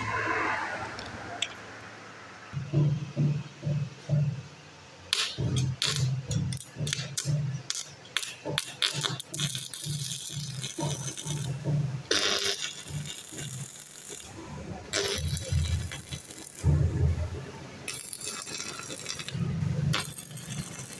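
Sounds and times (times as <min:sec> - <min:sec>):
welding arc crackling and sizzling: 0:05.1 - 0:20.9.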